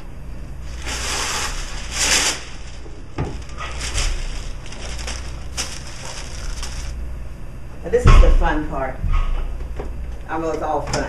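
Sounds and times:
plastic wrap rustling and crinkling: 0.6s - 7.0s.

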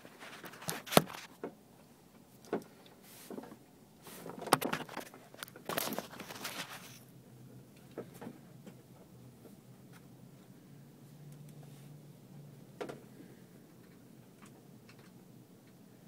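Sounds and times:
rustling: 3.0s - 7.1s.

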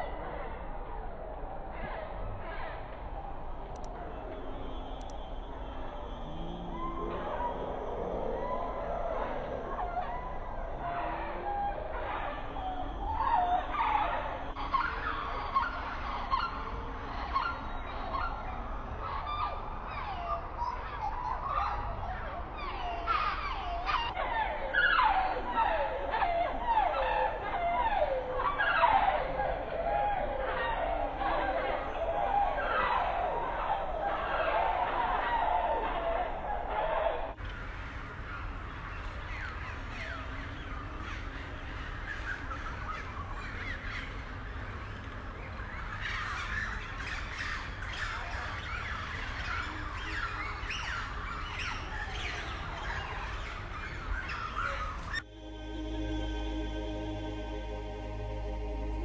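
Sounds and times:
bird chorus: 0.0s - 57.4s
birds chirping and whistling: 45.7s - 55.3s
low steady rumble: 55.2s - 59.0s.

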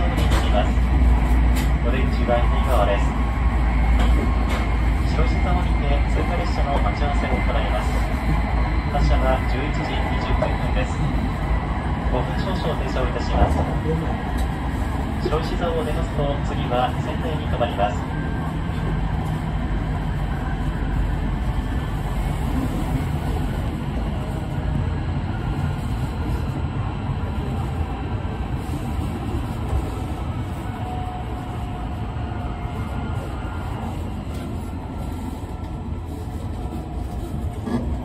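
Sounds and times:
train wheels rumbling: 0.0s - 38.0s.

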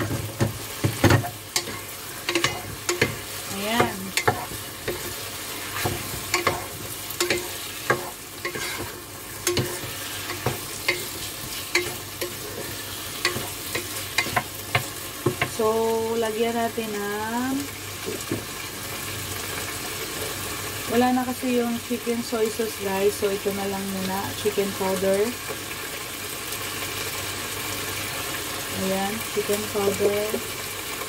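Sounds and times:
wooden spatula scraping a pot: 0.0s - 14.9s
chicken sizzling in a pot: 0.0s - 31.0s.

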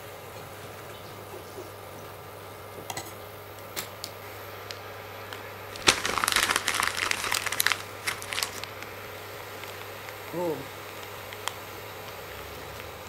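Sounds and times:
plastic pouch crinkling: 5.7s - 10.0s.

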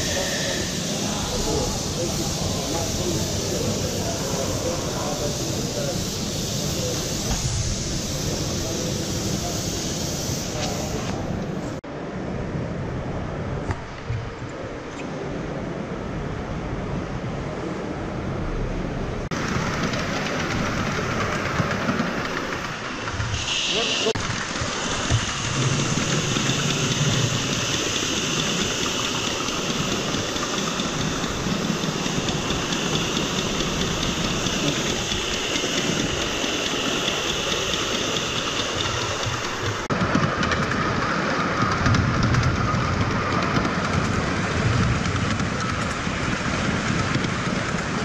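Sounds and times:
hiss of steam: 0.0s - 11.8s, 19.3s - 48.0s
wheels rumbling on track: 11.0s - 48.0s.

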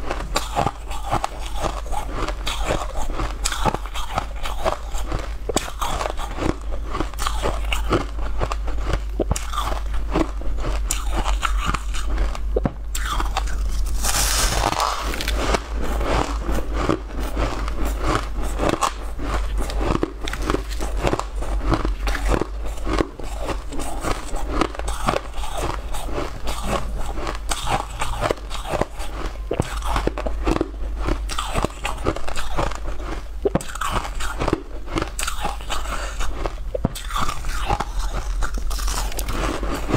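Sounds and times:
ice being crunched: 13.4s - 15.6s.

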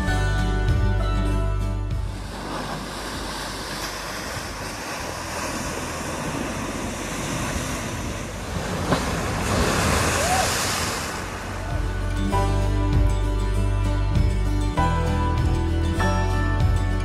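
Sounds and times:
waves breaking against wall: 2.0s - 11.9s.

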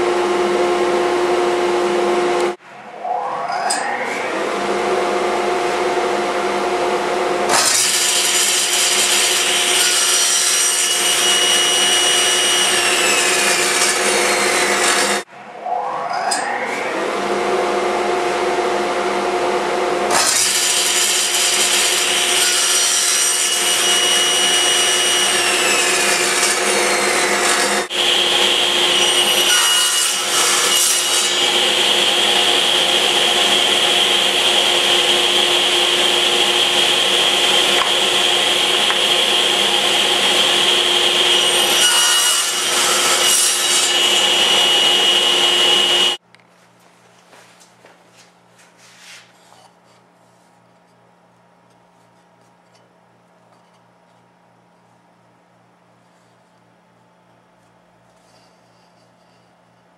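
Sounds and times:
table saw cutting wood: 0.0s - 46.2s.

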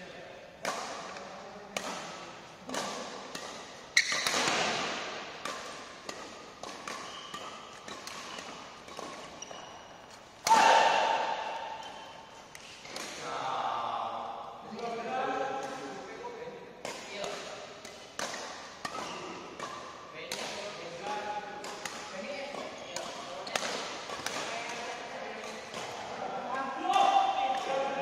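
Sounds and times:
racket hitting shuttlecock: 0.6s - 13.3s, 16.8s - 26.2s.

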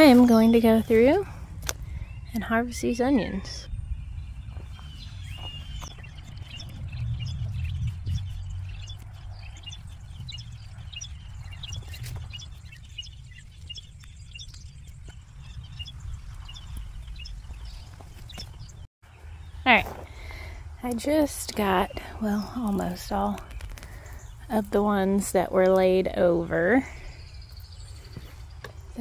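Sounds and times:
low rumble: 0.0s - 19.7s
small birds chirping: 0.0s - 29.0s.

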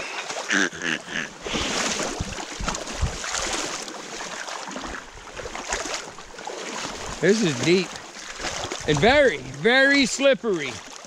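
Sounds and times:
water splashing around wading legs: 0.0s - 11.0s
wind on microphone: 1.4s - 3.6s, 8.4s - 9.6s.

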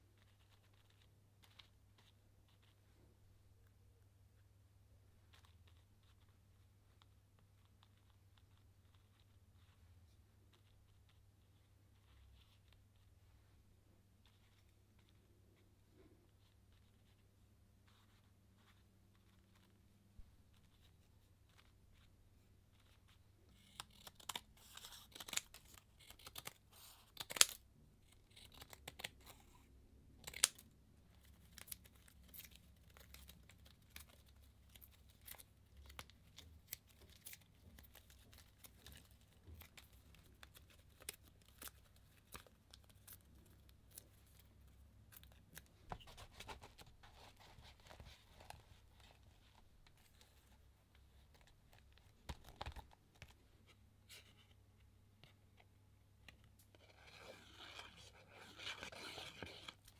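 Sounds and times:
paper rustling and tearing: 22.8s - 29.6s, 56.7s - 59.9s.

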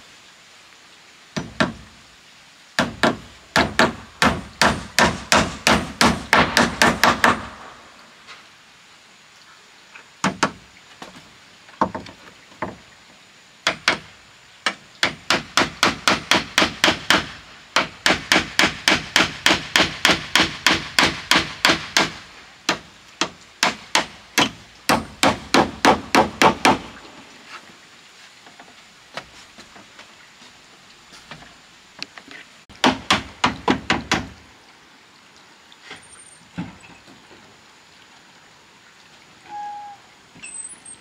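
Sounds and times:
hammer driving nails into wood: 2.8s - 7.6s, 13.7s - 26.9s.

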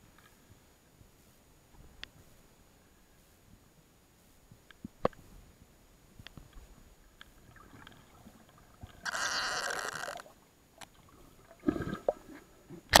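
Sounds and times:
underwater rush of bubbles: 11.1s - 12.5s.

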